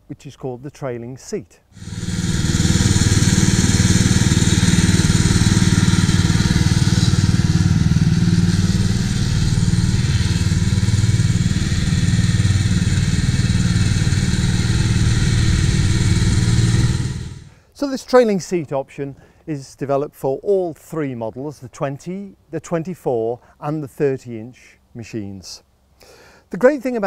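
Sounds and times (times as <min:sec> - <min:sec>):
lawn mower engine running: 0:01.8 - 0:17.6.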